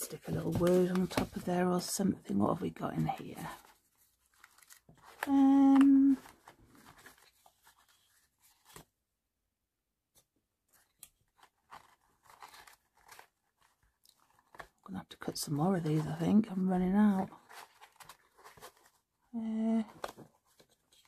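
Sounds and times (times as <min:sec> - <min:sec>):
paper cards rustling: 0:00.0 - 0:01.9, 0:02.7 - 0:09.0, 0:10.2 - 0:19.1, 0:19.7 - 0:21.0
woman humming: 0:05.2 - 0:06.2.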